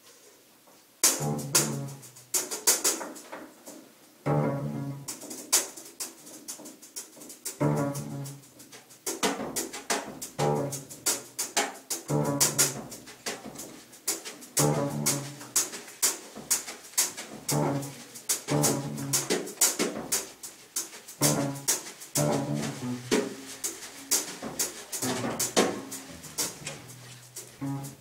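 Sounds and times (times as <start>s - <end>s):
bowed double bass: 1.2s - 2.0s, 4.2s - 5.1s, 7.6s - 8.5s, 10.4s - 11.1s, 12.1s - 12.9s, 14.6s - 15.4s, 17.5s - 19.2s, 21.2s - 24.0s, 25.0s - 28.0s.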